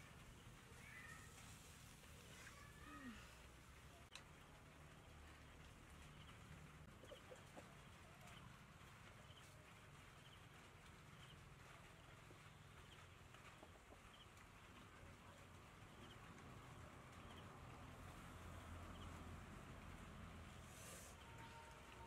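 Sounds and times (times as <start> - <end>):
chickens clucking and chirping: 6.0 - 8.6, 11.2 - 14.8.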